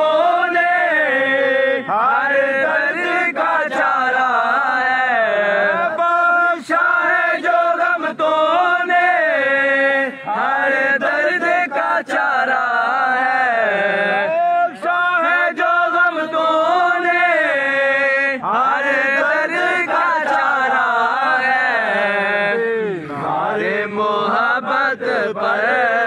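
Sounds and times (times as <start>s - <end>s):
men singing devotional song: 0.0s - 26.0s.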